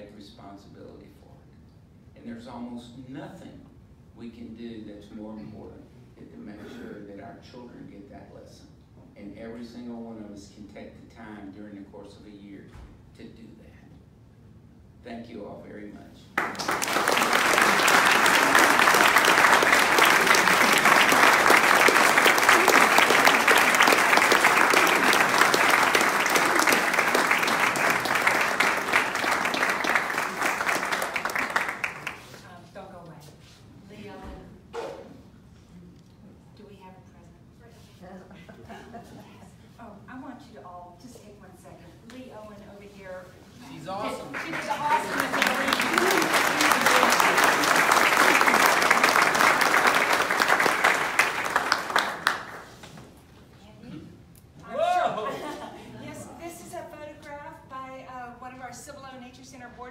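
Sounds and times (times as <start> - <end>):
audience applauding: 16.4 - 32.4, 44.0 - 52.8.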